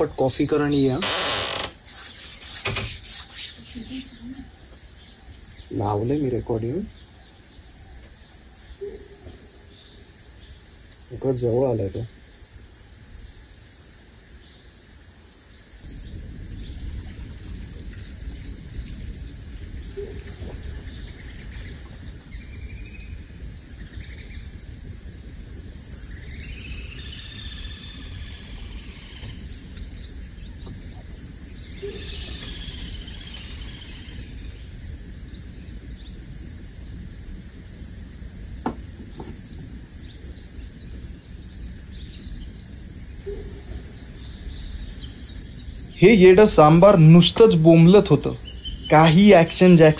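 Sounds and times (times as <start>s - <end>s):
insects shrilling and chirping: 0.0s - 49.9s
bird calls: 26.1s - 34.8s, 43.2s - 49.9s.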